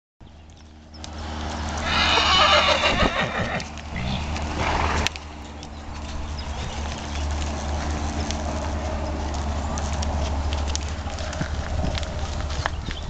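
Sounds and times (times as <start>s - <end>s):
horse whinnying: 1.8s - 4.8s.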